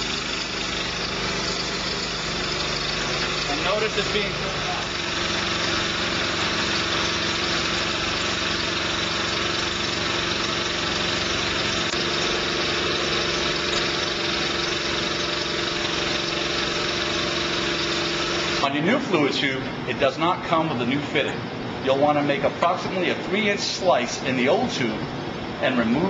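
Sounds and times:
texture sprayer machine drone: 0:00.0 - 0:19.1.

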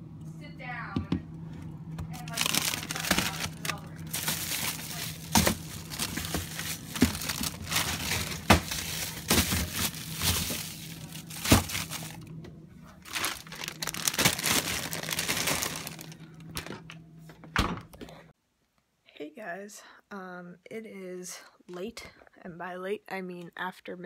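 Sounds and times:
steady low hum: 0:00.0 - 0:18.4
plastic bags crinkling: 0:02.1 - 0:17.0
plastic containers knocking: 0:04.2 - 0:12.1.

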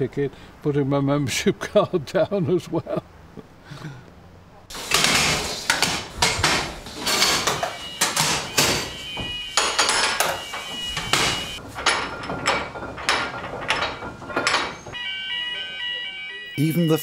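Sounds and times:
heavy metallic clanks and knocks: 0:04.7 - 0:15.5.

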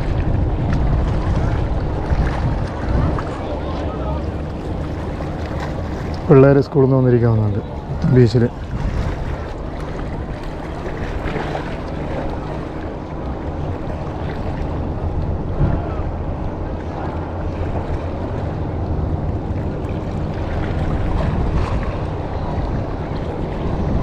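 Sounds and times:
sea washing against rocks: 0:00.0 - 0:24.0
wind rumbling on microphone: 0:00.0 - 0:24.0.

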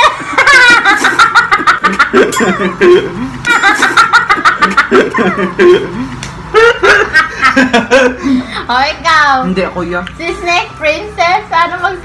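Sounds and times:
people laughing: 0:00.0 - 0:08.6.

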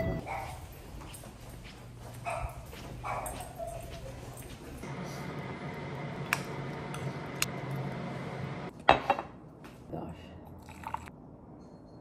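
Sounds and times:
steady low hum: 0:04.3 - 0:08.7.

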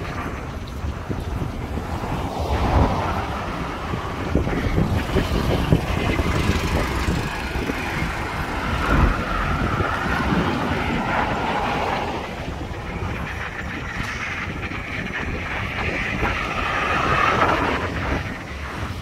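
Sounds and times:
cars driving past: 0:00.0 - 0:19.0
wind on microphone: 0:00.0 - 0:19.0.

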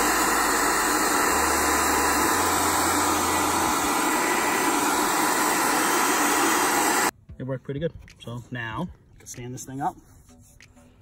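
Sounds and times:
hair dryer running: 0:00.0 - 0:07.1.

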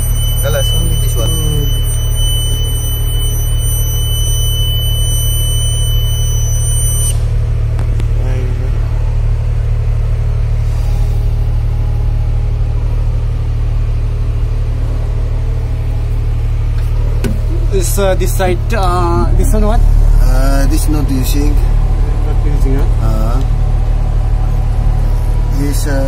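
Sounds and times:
thin high steady tone: 0:00.0 - 0:07.2, 0:17.7 - 0:23.3
diesel engine rumbling: 0:00.0 - 0:26.0.

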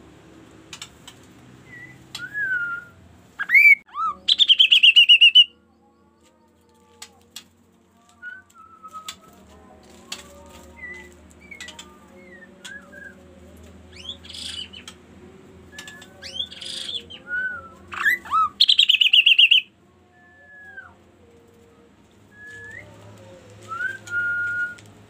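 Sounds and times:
bird whistling and trilling: 0:03.4 - 0:05.5, 0:15.8 - 0:19.7.

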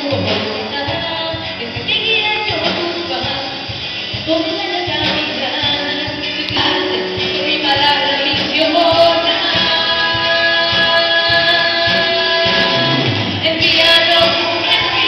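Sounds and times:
live band playing: 0:00.0 - 0:15.0
women singing in harmony: 0:04.3 - 0:15.0.

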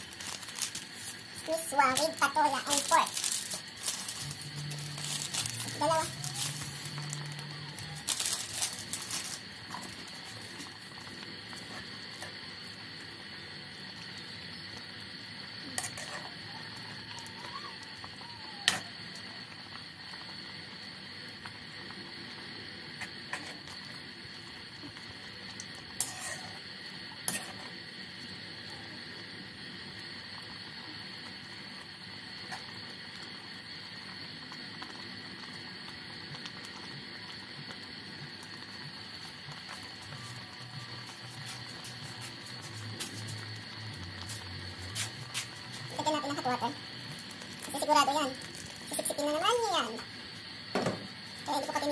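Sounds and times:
broth simmering: 0:00.0 - 0:51.9.

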